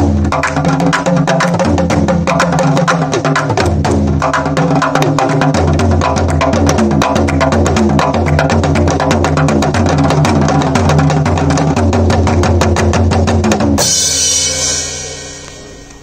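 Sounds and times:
fast hand drumming: 0.0 - 14.9
ringing cymbal crash: 13.8 - 16.0.

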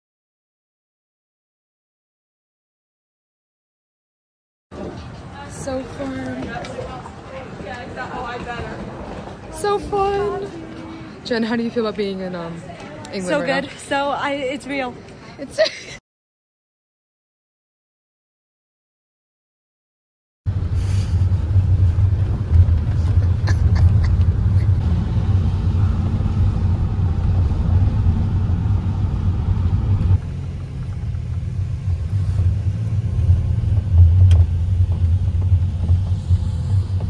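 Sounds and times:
vehicle rumbling in motion: 20.5 - 37.0.

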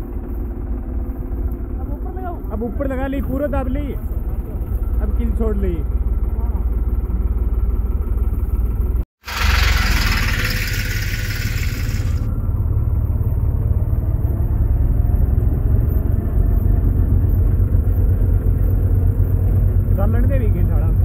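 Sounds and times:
tractor diesel engine running: 5.9 - 20.7
loud hiss: 9.2 - 12.3.

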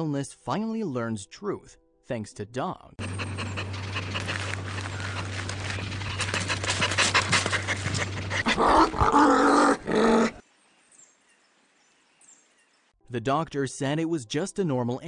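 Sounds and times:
dog panting: 3.0 - 9.1
dog vocalising: 3.0 - 10.4.

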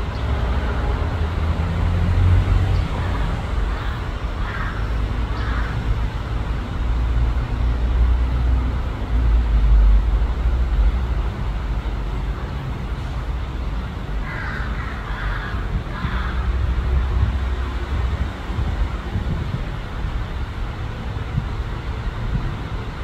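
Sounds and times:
loud steady low rumble: 0.9 - 23.0
crow cawing: 3.0 - 5.9, 14.2 - 16.6.

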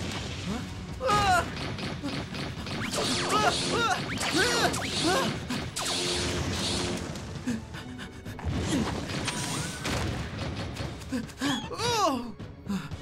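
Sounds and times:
cartoon action music: 0.0 - 12.4.

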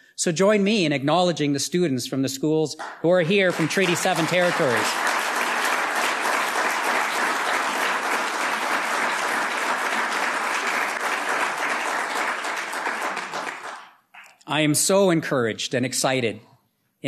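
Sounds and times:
audience applauding: 2.8 - 14.4.

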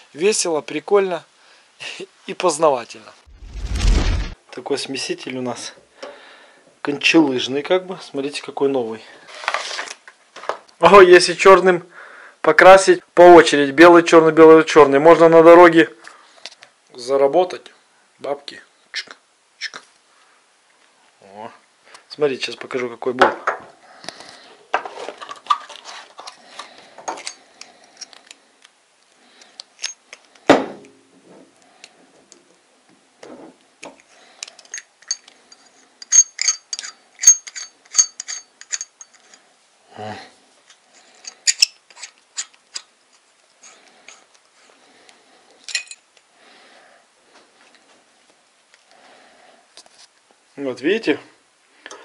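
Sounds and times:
quick metallic clinks: 34.7 - 39.3.

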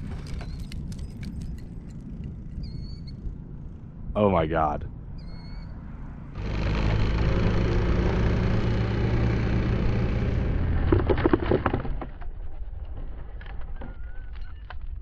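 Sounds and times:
small scattered clicks: 0.0 - 3.2
rotors running loud and rough: 6.3 - 11.2
sharp knocks and clatter on asphalt: 10.7 - 12.4.

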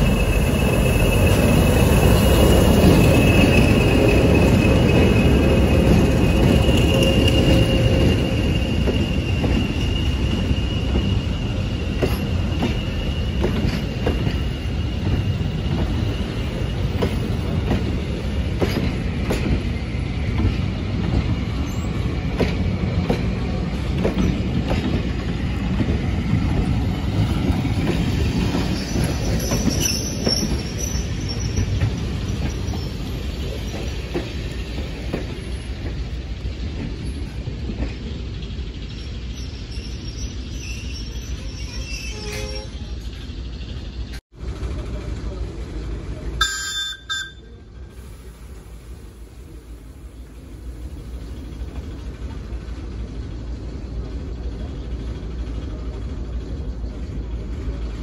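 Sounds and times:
wheels squealing: 0.0 - 18.5, 26.2 - 35.7, 38.5 - 44.2
train rumbling: 0.0 - 58.0.

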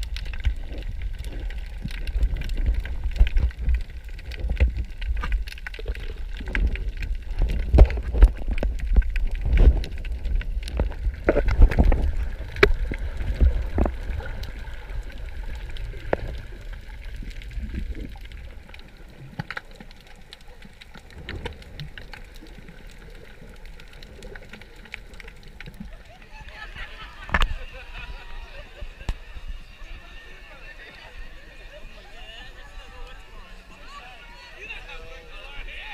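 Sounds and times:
underwater clicks and knocks: 0.0 - 26.0, 27.3 - 27.6
underwater churning and gurgling: 0.0 - 33.9.

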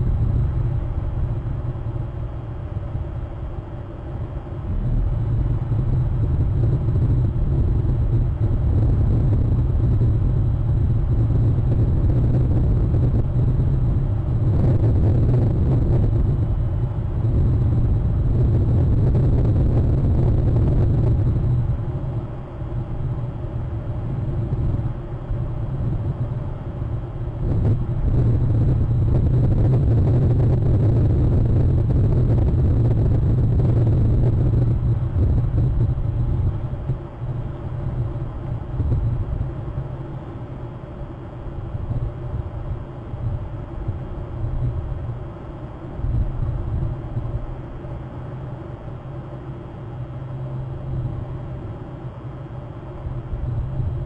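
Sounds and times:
wind buffeting microphone: 4.6 - 22.0, 22.8 - 39.6.

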